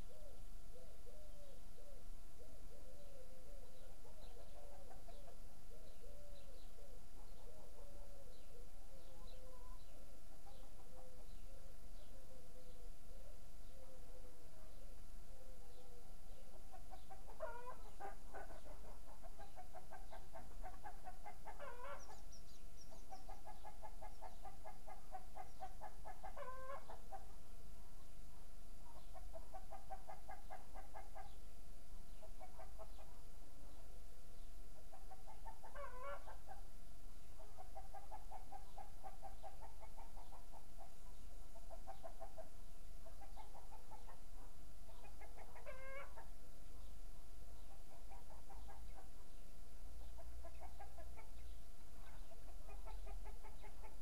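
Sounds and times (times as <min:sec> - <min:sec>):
hen cackling: 0:16.7 - 0:22.2, 0:23.0 - 0:27.3, 0:34.9 - 0:36.6, 0:44.9 - 0:46.3.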